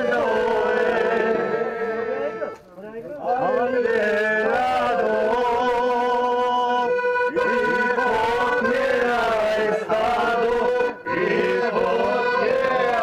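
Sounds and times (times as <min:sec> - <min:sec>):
slow traditional music: 0:00.0 - 0:13.0.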